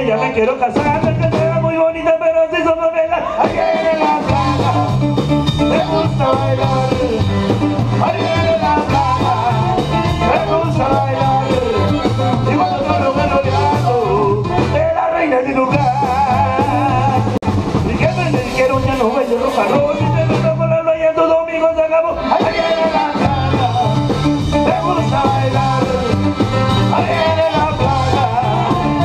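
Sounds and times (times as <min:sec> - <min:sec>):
drums: 0:00.0 - 0:29.0
guitar: 0:00.0 - 0:29.0
button accordion: 0:04.0 - 0:14.8, 0:22.4 - 0:29.0
alto saxophone: 0:04.4 - 0:14.7, 0:23.5 - 0:29.0.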